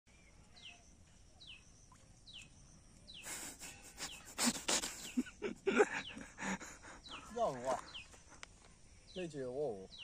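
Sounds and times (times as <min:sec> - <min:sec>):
water splashing and rustling: 0:01.0 - 0:03.1.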